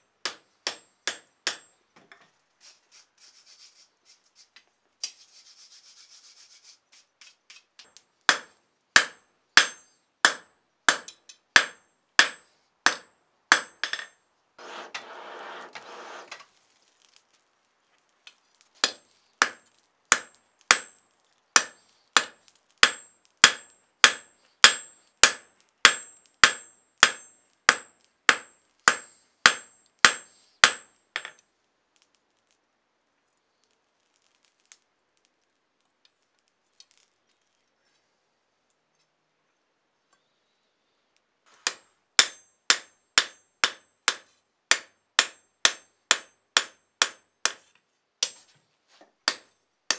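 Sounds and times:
hammer striking anvil: 0:00.3 - 0:01.7, 0:08.3 - 0:14.1, 0:18.8 - 0:21.0, 0:21.6 - 0:31.4, 0:41.7 - 0:47.6, 0:49.3 - 0:49.5
scraping hiss: 0:02.6 - 0:07.7, 0:14.6 - 0:17.5.

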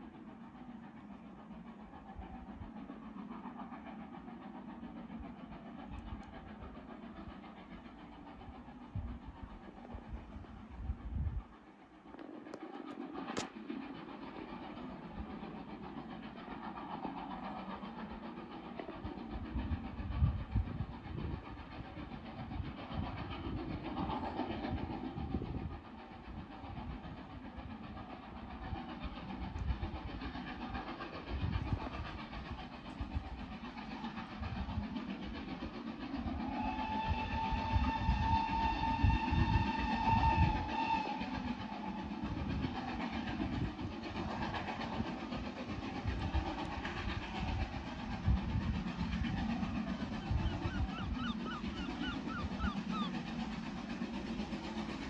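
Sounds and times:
wind rumbling on microphone: 0:08.8 - 0:11.6, 0:18.8 - 0:27.3, 0:31.2 - 0:33.6, 0:37.1 - 0:51.2
train whistle: 0:36.5 - 0:42.0.

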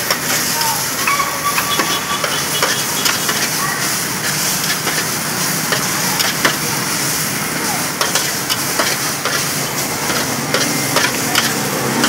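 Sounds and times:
noodles sizzling in a wok: 0:00.0 - 0:12.0
metal spatula scraping a wok: 0:01.0 - 0:06.3.

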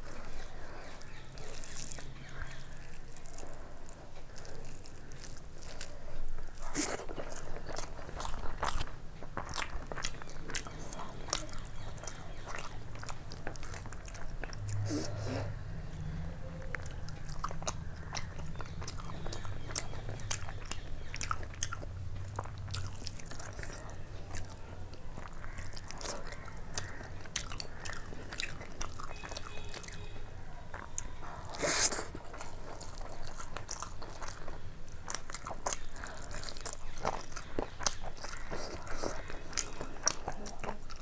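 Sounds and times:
person chewing food: 0:00.0 - 0:41.0.

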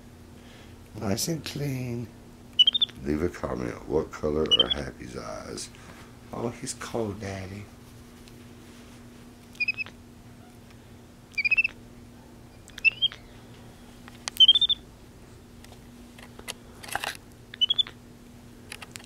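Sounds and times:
faint steady hum: 0:00.0 - 0:19.0
monkey chirping: 0:02.5 - 0:03.0, 0:04.4 - 0:04.9, 0:09.6 - 0:10.0, 0:11.3 - 0:11.8, 0:12.5 - 0:13.3, 0:14.4 - 0:14.8, 0:17.6 - 0:18.0.

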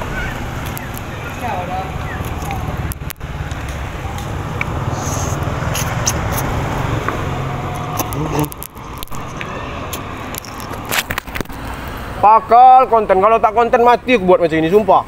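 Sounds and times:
motorbikes and cars driving past: 0:00.0 - 0:15.0.

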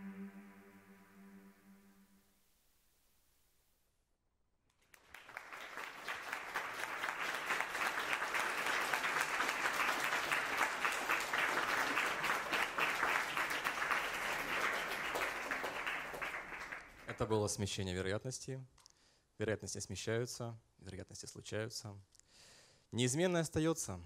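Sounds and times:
audience applauding: 0:04.8 - 0:17.5.

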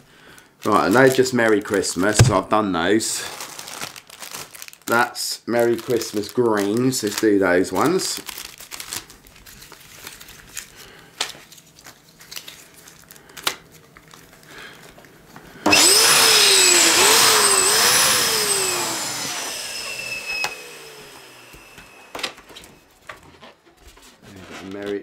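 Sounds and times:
electric balloon pump whirring: 0:15.6 - 0:22.8.

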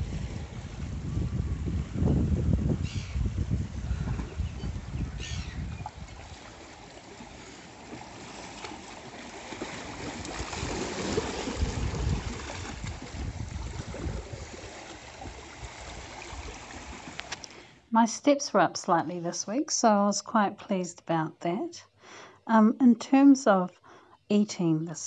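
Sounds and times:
waves washing among rocks: 0:06.1 - 0:17.4.

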